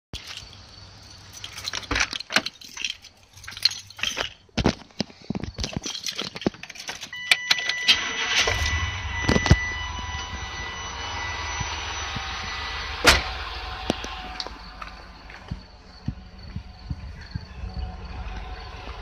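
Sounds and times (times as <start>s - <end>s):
truck engine starting and idling: 7.0s - 19.0s.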